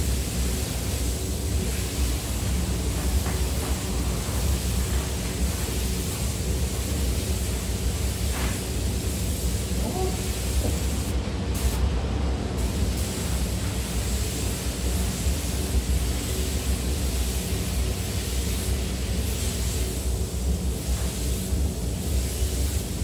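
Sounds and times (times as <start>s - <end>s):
ventilation air rushing: 0.0s - 23.0s.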